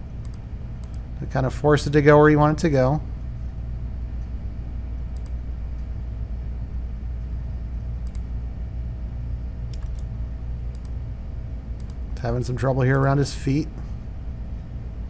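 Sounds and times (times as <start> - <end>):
steady low hum: 0.0 - 15.0
computer mouse clicks: 0.2 - 1.0, 5.1 - 5.4, 8.0 - 8.3, 9.7 - 10.1, 10.7 - 11.0, 11.8 - 12.0.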